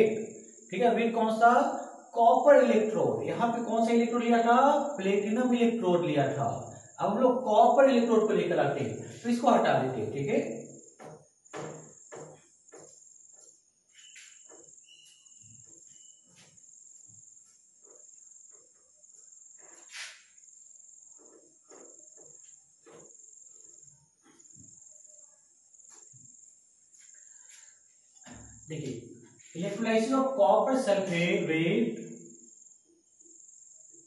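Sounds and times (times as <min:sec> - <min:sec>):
duster wiping whiteboard: 0:17.4 - 0:20.4.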